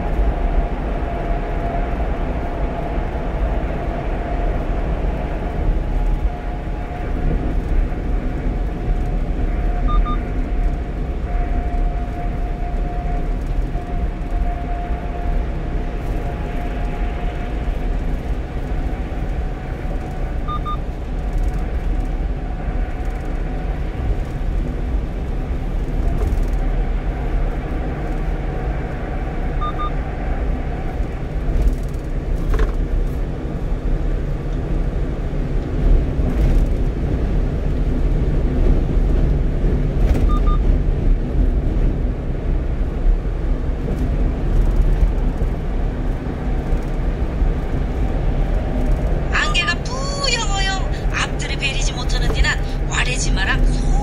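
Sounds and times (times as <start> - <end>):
truck cab engine and road rumble: 0.0 - 54.0
faint double beep: 9.9 - 10.2, 20.5 - 20.8, 29.6 - 30.0, 40.3 - 40.6.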